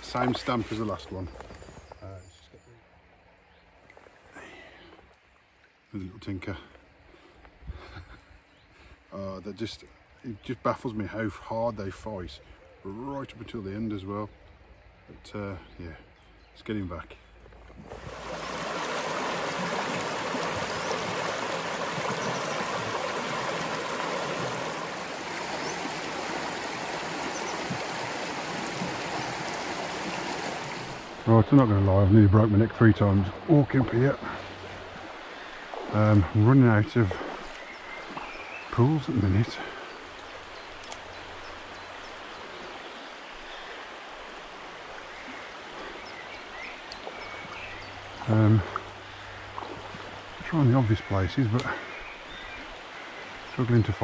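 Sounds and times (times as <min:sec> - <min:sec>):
river rushing over stones: 0:17.8 - 0:31.4.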